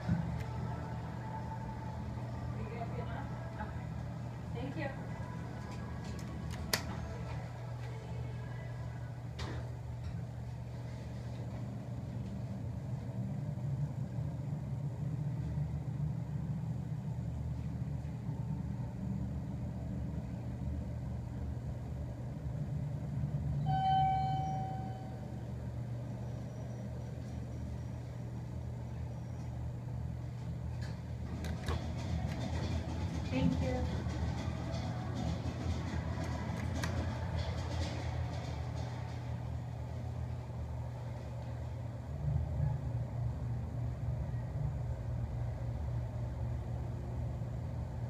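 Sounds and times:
elevator drive humming: 0.0s - 48.0s
elevator chime: 23.6s - 25.6s.

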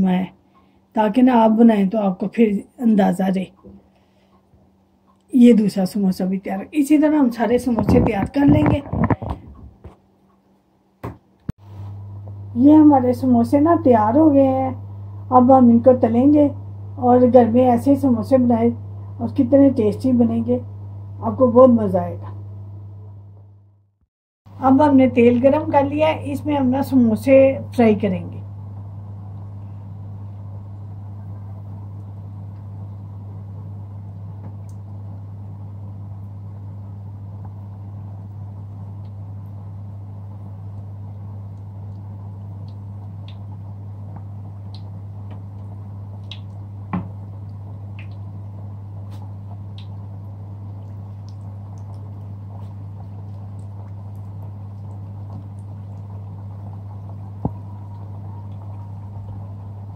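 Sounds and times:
steady low hum: 0.0s - 59.9s
oil bubbling while deep-frying: 28.6s - 59.9s.

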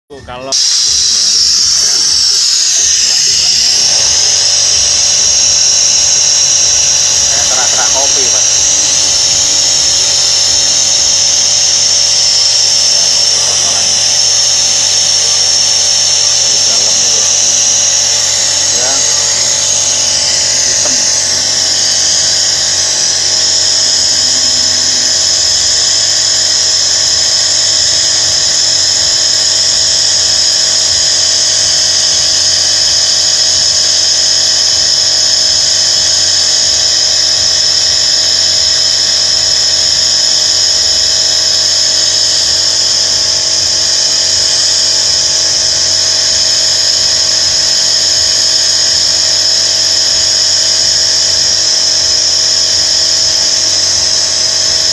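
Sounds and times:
loud steady high hiss: 0.2s - 54.9s
car engine running: 0.3s - 27.6s.

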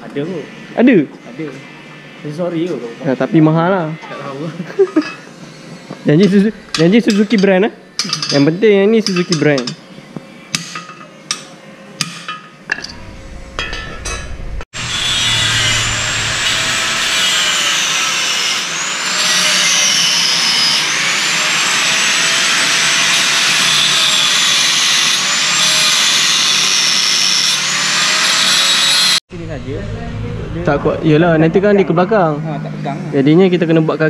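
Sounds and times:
angle grinder cutting steel: 4.2s - 9.8s, 10.6s - 29.2s.

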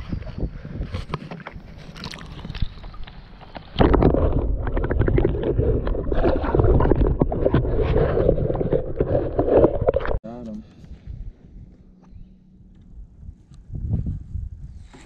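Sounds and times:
wind buffeting microphone: 0.0s - 1.8s, 10.9s - 15.0s
muffled underwater sloshing: 1.0s - 10.2s
underwater clicks and knocks: 2.3s - 10.2s.

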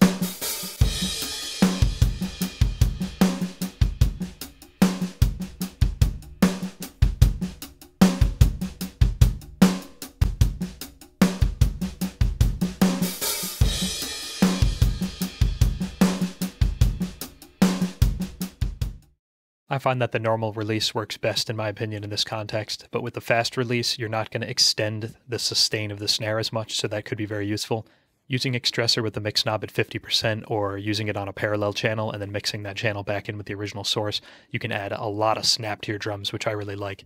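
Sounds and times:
drum kit playing a groove: 0.0s - 19.1s.

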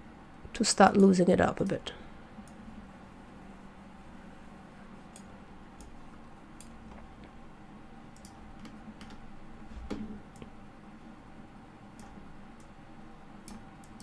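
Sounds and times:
faint low hum: 0.0s - 14.0s
computer mouse clicks: 5.1s - 6.0s, 6.6s - 7.3s, 8.1s - 9.2s, 11.9s - 12.8s, 13.4s - 14.0s.

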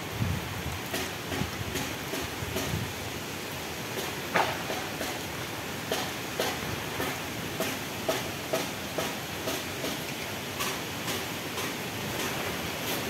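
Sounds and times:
heavy rain hissing: 0.0s - 13.0s.

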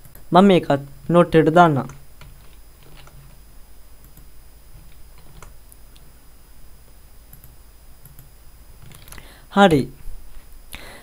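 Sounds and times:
low electrical hum: 0.0s - 11.0s
keyboard and mouse clicks: 1.8s - 3.4s, 4.0s - 6.1s, 7.3s - 9.2s.

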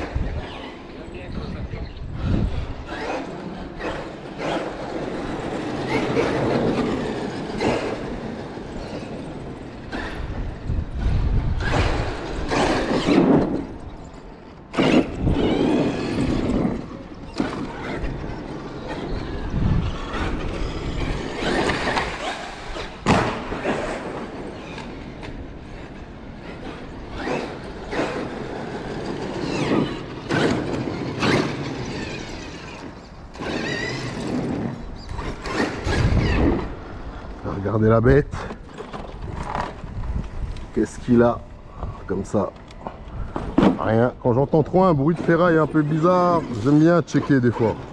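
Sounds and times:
toy truck motor whining: 2.0s - 23.0s, 24.5s - 37.3s.

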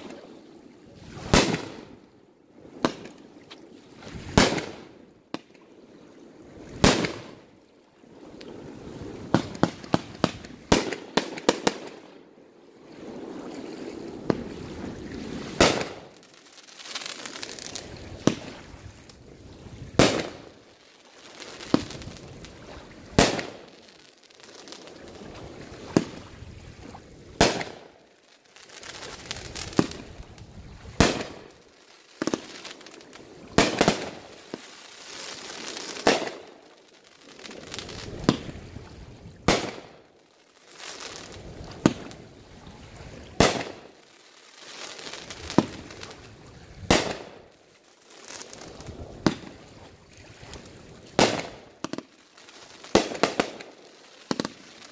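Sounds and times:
firework bangs: 1.2s - 1.9s, 15.5s - 16.3s, 20.0s - 20.5s, 23.2s - 23.7s, 31.0s - 31.6s, 33.5s - 36.5s, 39.4s - 40.0s, 43.3s - 44.0s, 46.9s - 47.4s, 48.8s - 49.6s, 51.2s - 52.1s, 52.8s - 54.9s.

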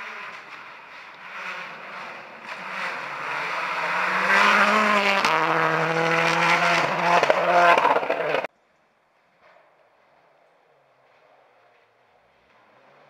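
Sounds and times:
rally car engine at full speed: 0.0s - 8.5s, 11.1s - 13.0s.

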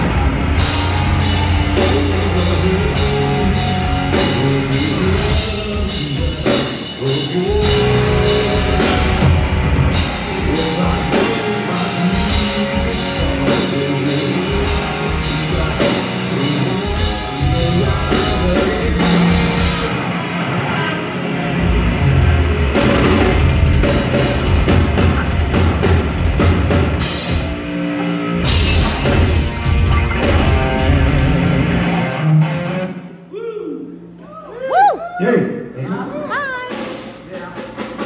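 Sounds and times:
drum kit: 0.0s - 32.8s, 36.3s - 38.0s
distorted electric guitars: 0.0s - 33.2s
bass guitar: 0.0s - 33.4s.

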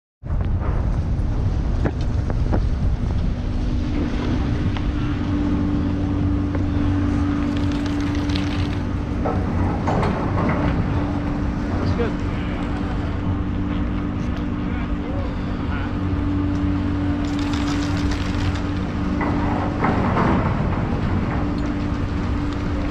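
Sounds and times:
wind noise on microphone: 0.2s - 22.9s
chairlift drive machinery hum: 0.3s - 22.9s.

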